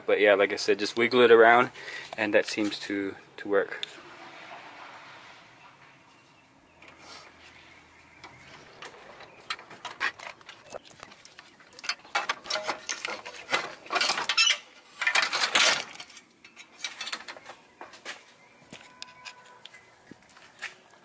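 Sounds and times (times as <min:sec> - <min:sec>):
metal and plastic clicks and rattles: 0:08.2 - 0:17.6.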